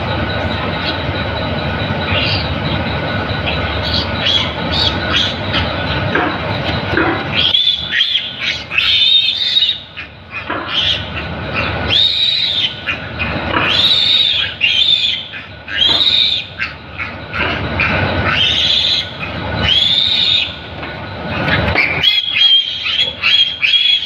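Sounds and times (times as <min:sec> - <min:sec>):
piglet squealing: 0:03.8 - 0:05.8, 0:07.3 - 0:20.6, 0:21.4 - 0:24.0.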